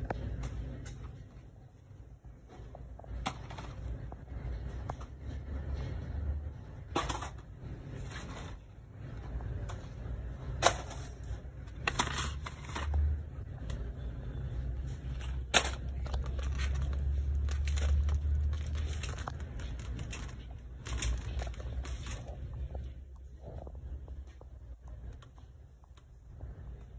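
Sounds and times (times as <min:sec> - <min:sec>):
shopping cart wheels rumbling on tile: 0:02.9 - 0:13.4, 0:14.8 - 0:24.4.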